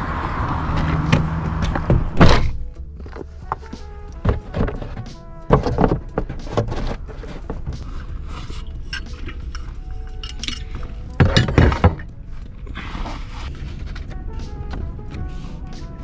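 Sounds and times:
objects rustling and clinking: 2.1 - 14.2.

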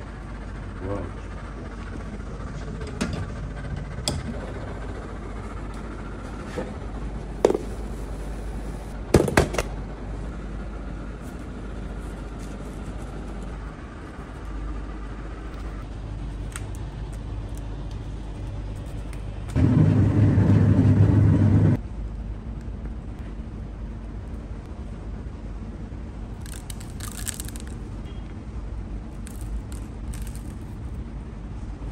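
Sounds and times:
low background rumble: 0.0 - 31.9
sugar sprinkles pattering: 26.4 - 27.8, 29.2 - 30.8.

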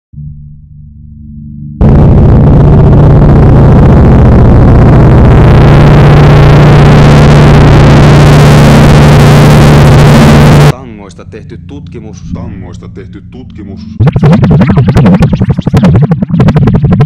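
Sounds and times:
low drone: 1.8 - 15.4
distorted noise: 1.8 - 17.0.

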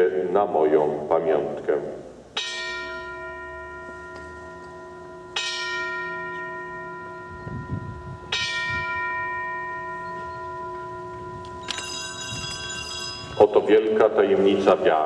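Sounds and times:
bell ringing: 2.4 - 13.9.

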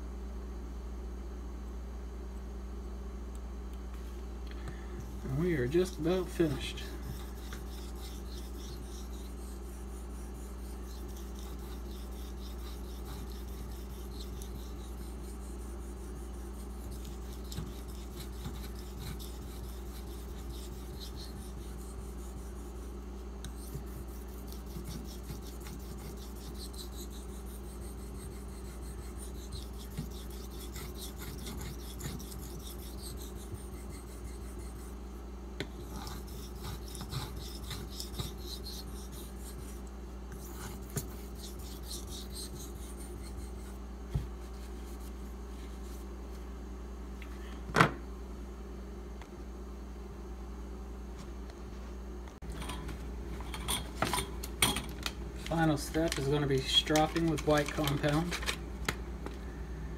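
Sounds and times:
steady low hum: 0.0 - 59.9
knife scraping on water stone: 5.7 - 35.0, 35.6 - 43.8.

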